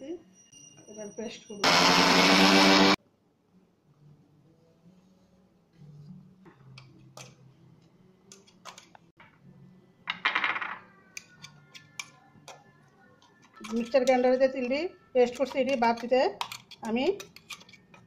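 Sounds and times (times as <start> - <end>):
metal spoon clinking in jar: 10.8 - 18.0.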